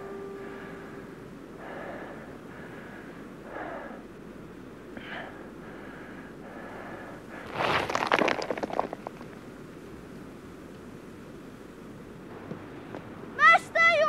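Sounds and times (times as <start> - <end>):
man breathing hard: 0.4 - 7.7.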